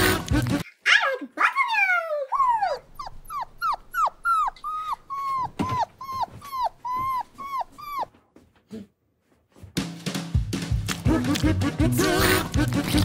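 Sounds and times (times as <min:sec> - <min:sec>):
dog whining: 0:01.0 - 0:08.9.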